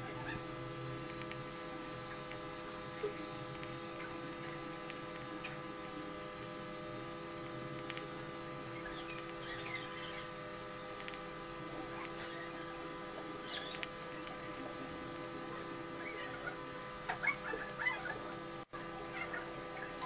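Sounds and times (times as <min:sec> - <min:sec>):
electrical hum: 0:00.0 - 0:20.0.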